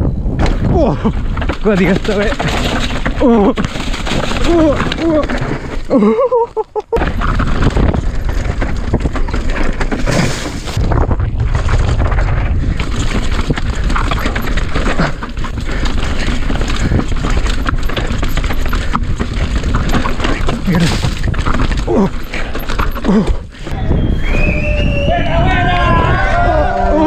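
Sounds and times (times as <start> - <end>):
bike rattling and knocking: 0.3 - 23.7
tyres crunching over dirt and stones: 0.4 - 23.7
wind buffeting the microphone: 23.6 - 27.0.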